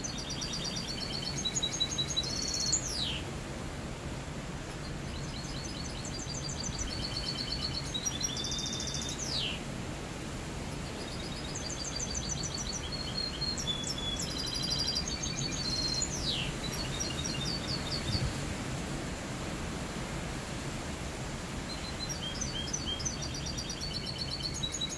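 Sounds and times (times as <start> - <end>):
finch singing trills: 0.0 - 3.2, 4.8 - 9.6, 10.8 - 18.4, 21.7 - 24.9.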